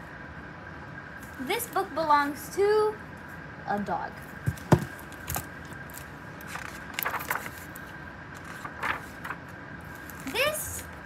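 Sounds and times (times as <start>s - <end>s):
knocks and taps on book: 4.4s - 5.5s
book pages turning: 4.5s - 10.5s.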